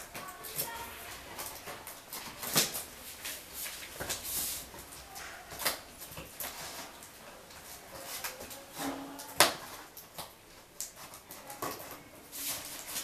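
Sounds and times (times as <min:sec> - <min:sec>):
cardboard snapping: 0:02.2 - 0:02.9.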